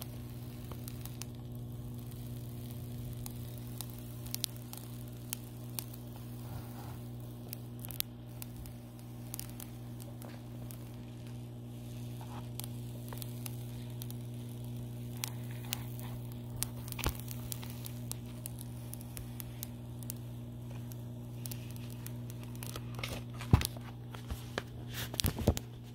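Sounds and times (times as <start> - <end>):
plastic film peeling crackles: 0.0 - 25.9
steady low hum: 0.0 - 25.9
plastic film snapping: 12.0 - 25.8.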